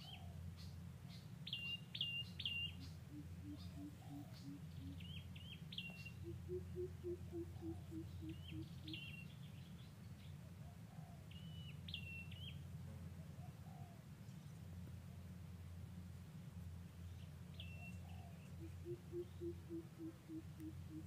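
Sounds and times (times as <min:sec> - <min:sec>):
birds chirping: 0:00.0 - 0:12.6, 0:17.0 - 0:21.0
steady low hum: 0:00.0 - 0:21.0.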